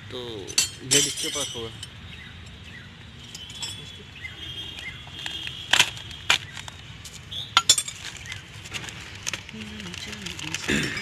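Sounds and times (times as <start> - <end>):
spanners clinking together: 0.4 - 2.0, 3.2 - 4.0.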